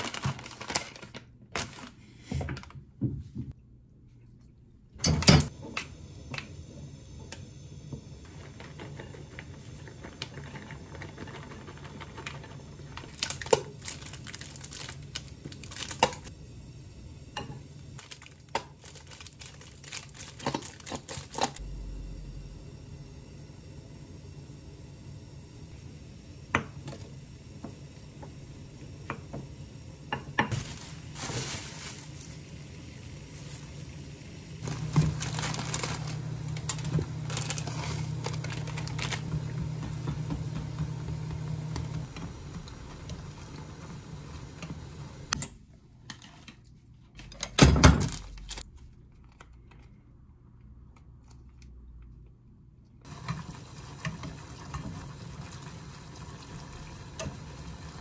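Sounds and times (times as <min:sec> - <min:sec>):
noodles boiling in a pot: 0:05.5 - 0:21.6, 0:22.6 - 0:45.4, 0:53.0 - 0:58.0
steady low hum: 0:21.4 - 0:30.1.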